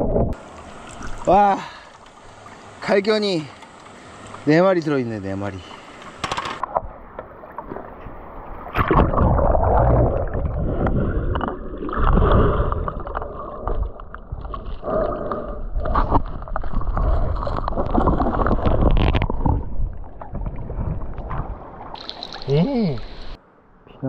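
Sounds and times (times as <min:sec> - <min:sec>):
muffled underwater stream gurgling: 0:06.7 - 0:23.4.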